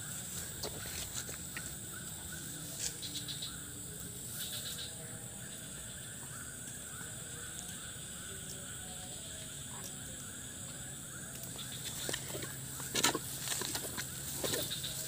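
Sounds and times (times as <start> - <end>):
rustling vegetation underfoot: 0.0 - 3.3, 11.7 - 15.0
frogs chirping: 0.0 - 15.0
insects buzzing: 0.0 - 15.0.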